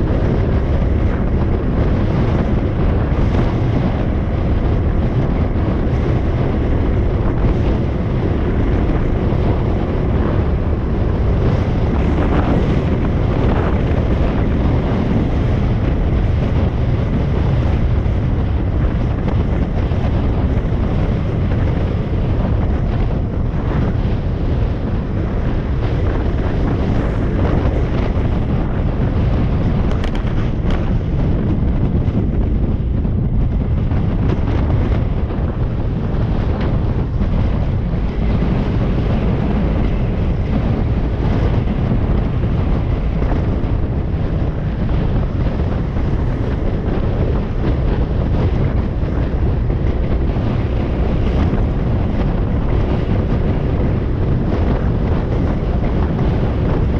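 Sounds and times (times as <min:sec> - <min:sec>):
wind buffeting microphone: 0:00.0 - 0:56.9.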